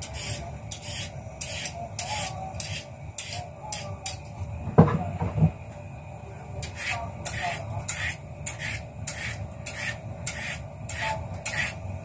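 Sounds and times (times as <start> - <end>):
peeler scraping carrot: 0.0 - 3.9, 6.6 - 11.8.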